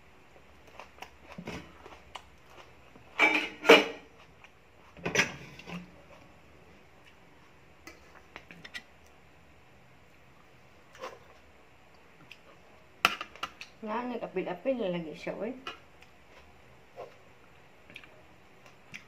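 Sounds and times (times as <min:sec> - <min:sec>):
dishes clattering on a table: 0:03.2 - 0:04.1, 0:05.0 - 0:05.5.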